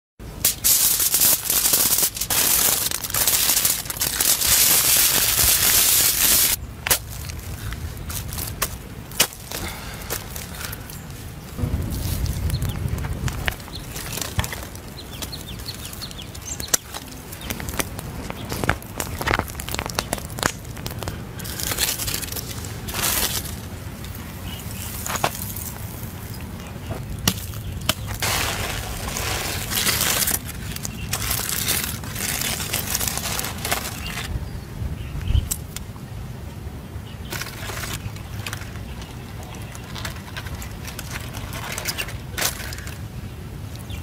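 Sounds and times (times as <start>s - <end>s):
aluminium foil crinkling and tearing: 0.4s - 11.3s, 13.0s - 26.0s, 27.3s - 34.3s, 37.3s - 43.1s
stick scraping through embers: 27.3s - 34.3s.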